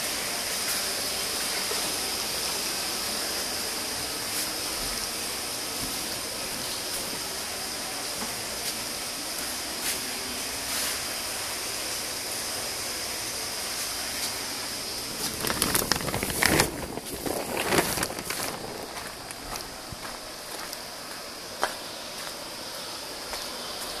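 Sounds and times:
rushing water in tank: 0:00.0 - 0:20.1
footsteps: 0:15.2 - 0:22.4.

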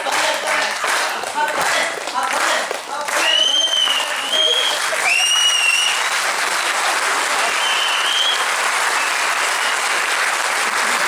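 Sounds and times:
audience applauding: 0:00.0 - 0:11.0
high whistles: 0:03.2 - 0:06.1, 0:07.6 - 0:09.8.

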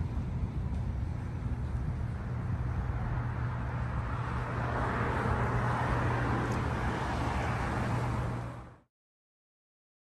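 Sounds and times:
street traffic rumble: 0:00.0 - 0:08.9
car passing: 0:02.0 - 0:08.9.

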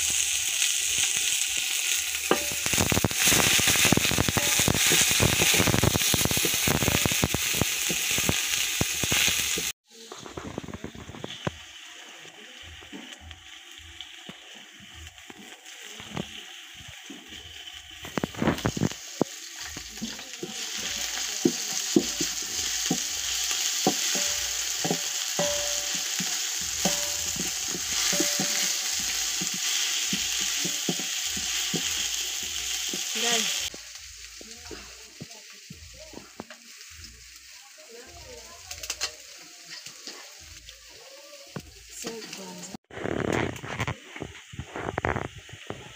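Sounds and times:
onions sizzling in oil: 0:00.0 - 0:45.9
wooden spoon scraping a pot: 0:20.0 - 0:32.1.

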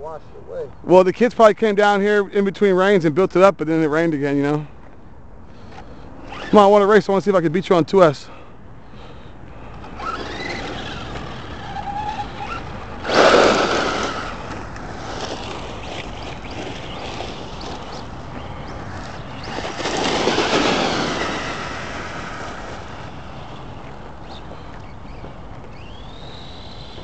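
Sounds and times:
tyre noise on asphalt: 0:08.9 - 0:27.0
electric motors whining: 0:09.7 - 0:27.0.

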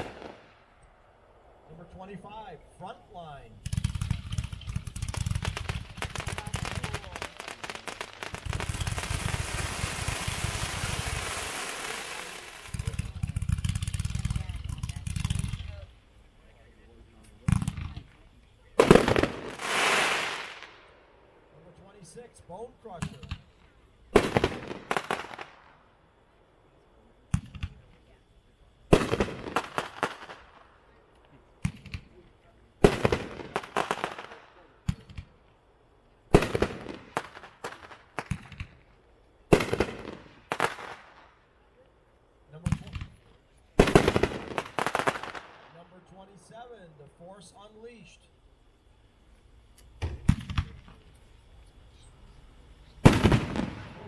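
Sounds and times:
firework cake popping and crackling: 0:03.6 - 0:15.9, 0:17.2 - 0:20.9, 0:22.9 - 0:25.8, 0:28.9 - 0:35.5, 0:36.3 - 0:41.8, 0:42.5 - 0:46.0, 0:49.6 - 0:52.0, 0:52.6 - 0:54.0.

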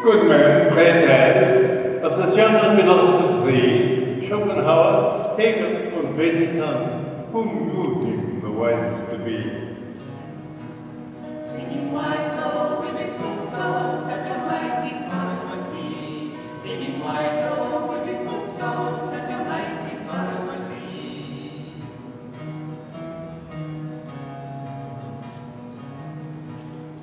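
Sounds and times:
acoustic guitar: 0:00.0 - 0:27.0
group singing: 0:11.3 - 0:22.2.

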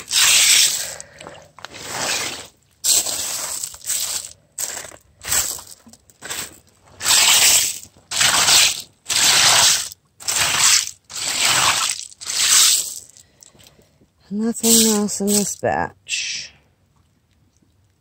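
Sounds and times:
stones scraping in sifting screen: 0:00.0 - 0:01.1, 0:01.7 - 0:13.2, 0:14.6 - 0:15.6.

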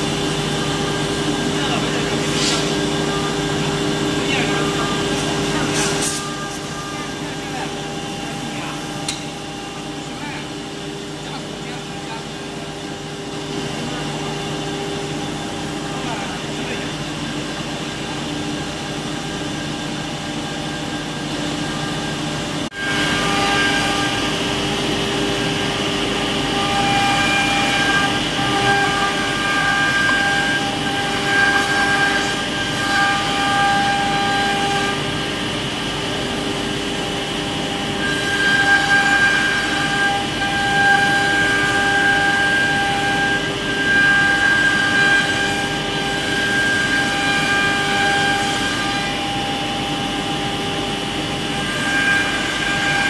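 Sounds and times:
router spindle whining: 0:20.4 - 0:53.0.

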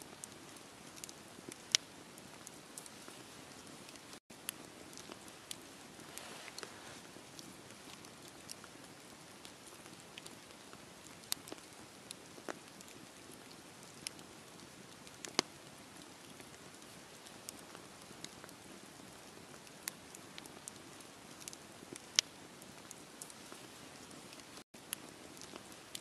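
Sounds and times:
wood fire crackling and popping: 0:00.0 - 0:26.0.

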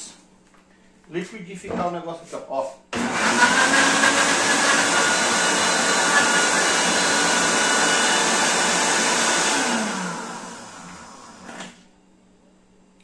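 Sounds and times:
blender grinding: 0:03.0 - 0:11.8.

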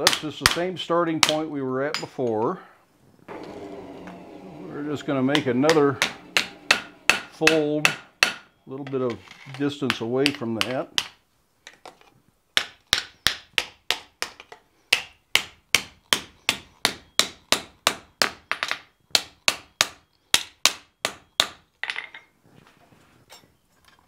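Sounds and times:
hammer striking hot steel on anvil: 0:05.3 - 0:08.5.

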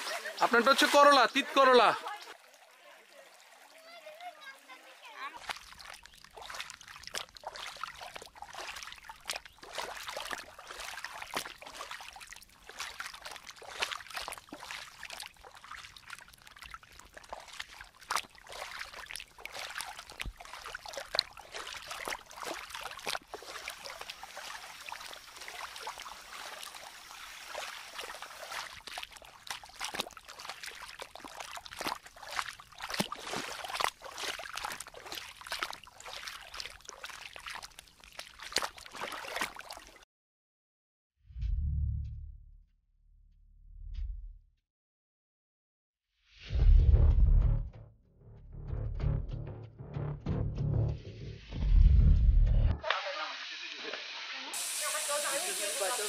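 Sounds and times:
stream splashing over stones: 0:00.0 - 0:40.0, 0:52.8 - 0:56.0.

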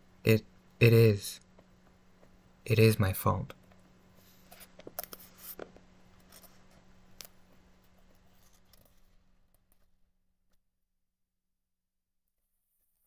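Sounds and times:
low steady hum: 0:00.0 - 0:10.6
book pages rustling: 0:04.2 - 0:10.0.

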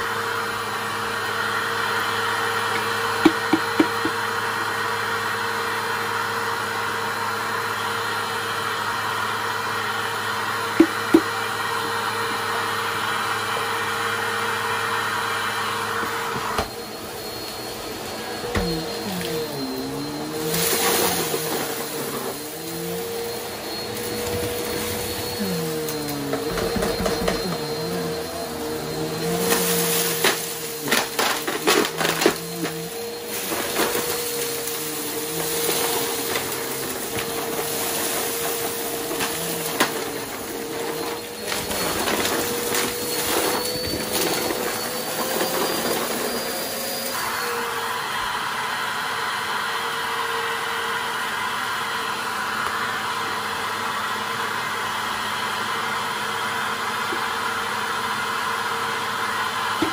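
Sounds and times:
vacuum cleaner running: 0:00.0 - 0:59.9
debris crackling in vacuum: 0:18.5 - 0:47.0.

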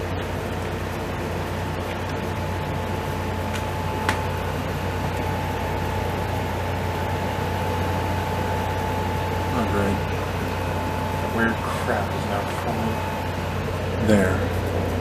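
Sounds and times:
mechanical droning hum: 0:00.0 - 0:15.0
sharp click: 0:03.5 - 0:04.3.

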